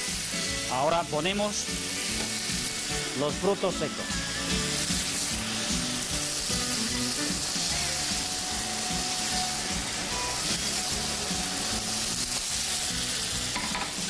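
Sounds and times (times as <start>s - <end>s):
background music: 0.0s - 14.0s
sauce sizzling in frying pan: 0.0s - 14.0s.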